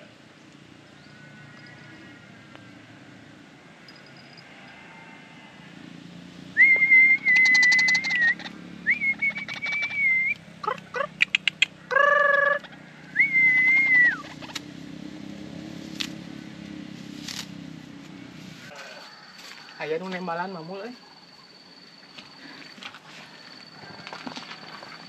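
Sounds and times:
waterhen calling: 0:07.2 - 0:14.6.

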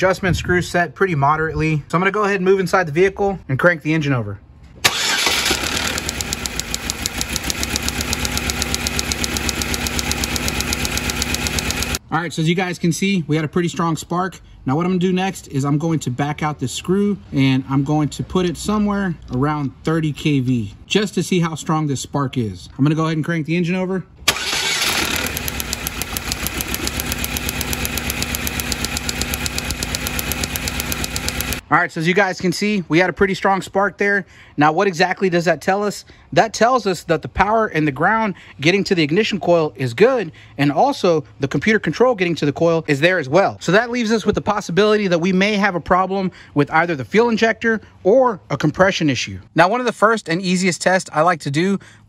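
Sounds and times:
engine cranking: 0:04.8 - 0:12.0, 0:24.3 - 0:31.6
sharp spark ticks: 0:06.1 - 0:12.0, 0:25.2 - 0:31.6.

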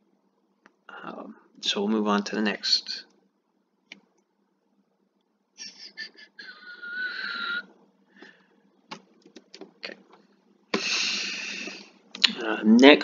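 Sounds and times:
breathy wheezy noises: 0:10.7 - 0:12.0
loud breath: 0:10.7 - 0:12.0.

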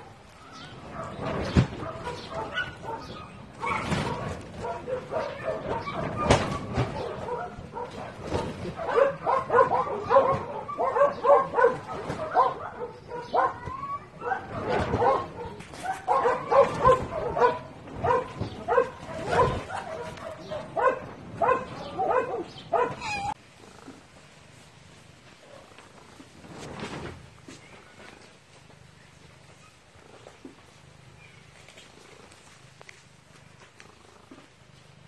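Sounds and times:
dog yapping: 0:01.8 - 0:23.4.

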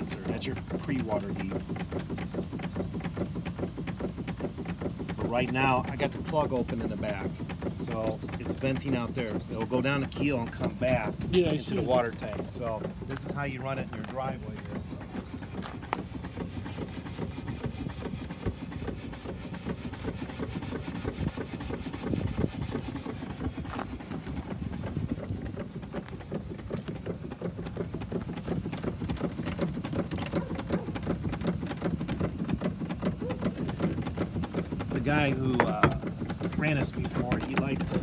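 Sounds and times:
steam engine running: 0:00.0 - 0:38.0.

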